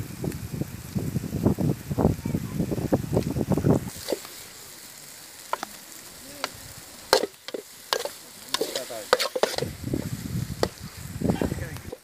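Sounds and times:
low sizzle: 0.0s - 12.0s
metal spoon scraping a pot: 7.1s - 9.7s.

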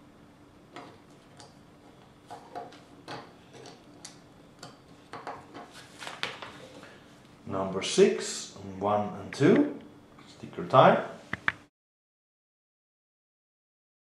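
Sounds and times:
paper page turning: 5.7s - 6.7s.

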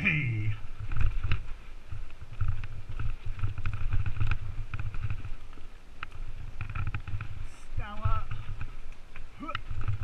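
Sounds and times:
bike tyres rumbling on dirt: 0.0s - 10.0s
wind on camera: 0.0s - 10.0s.

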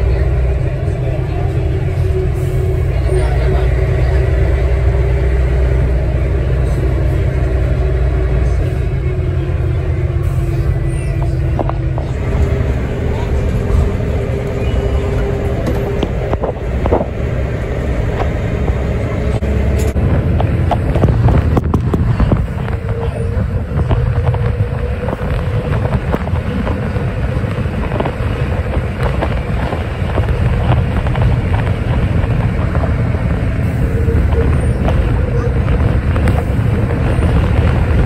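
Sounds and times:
bus engine and road rumble: 0.0s - 38.0s
body rattles and knocks: 19.8s - 38.0s.

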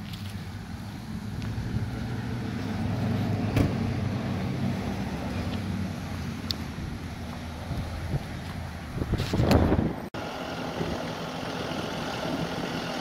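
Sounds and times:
truck engine idling: 10.2s - 13.0s.

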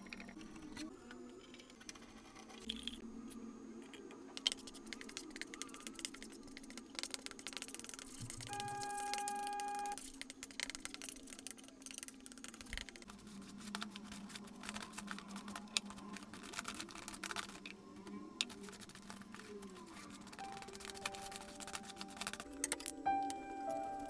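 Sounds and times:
steady pitched tone: 8.4s - 10.0s
glue brush scraping and tapping: 10.1s - 17.7s, 18.4s - 22.9s.

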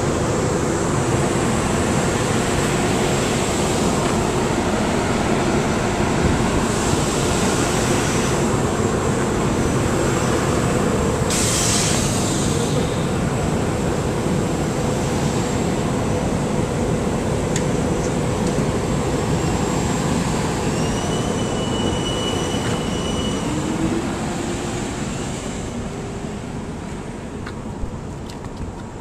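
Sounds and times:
train wheels rumbling on rail: 0.0s - 29.0s
high wheel squeal: 20.4s - 25.6s.

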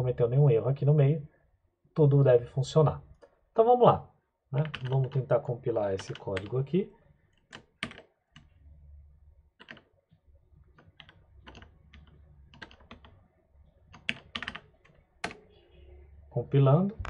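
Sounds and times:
keyboard keystrokes: 4.6s - 5.3s, 6.0s - 6.5s, 7.4s - 8.5s, 9.6s - 9.9s, 10.7s - 13.2s, 13.9s - 15.5s.

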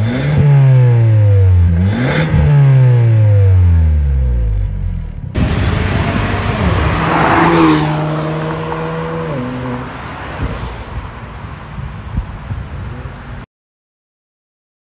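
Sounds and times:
car exhaust accelerating past: 0.0s - 13.4s.

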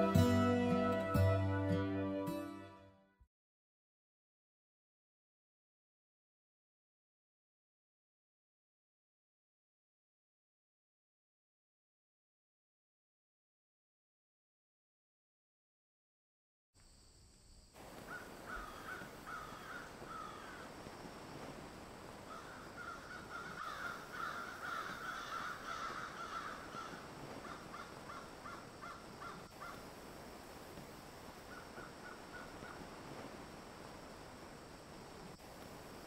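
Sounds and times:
steady background hiss: 16.8s - 36.0s
crows cawing: 18.0s - 20.7s, 22.3s - 29.8s, 31.5s - 32.8s.

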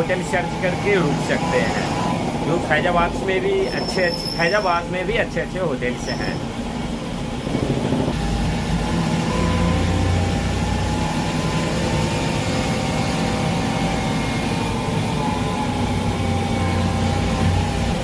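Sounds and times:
vehicle engine running: 6.6s - 18.0s.

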